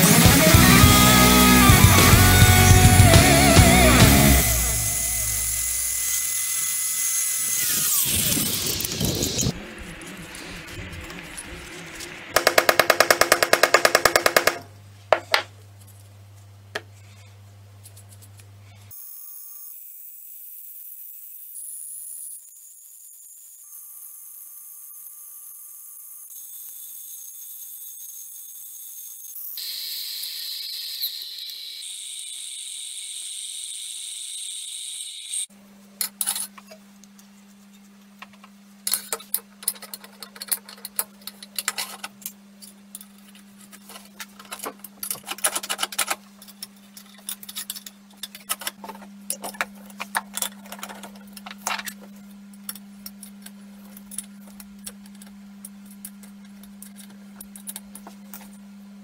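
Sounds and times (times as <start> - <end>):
low hum: 7.6 - 14.0.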